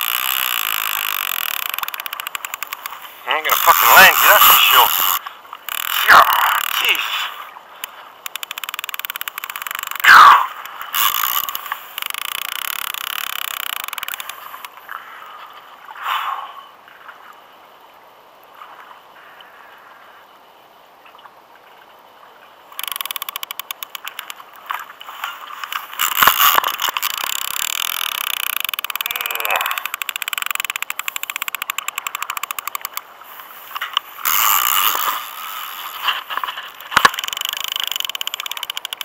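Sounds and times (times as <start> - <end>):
fishing reel clicking: 0.0 - 14.8, 22.7 - 24.8, 25.5 - 39.0
reel squealing: 0.0 - 14.8, 22.7 - 39.0.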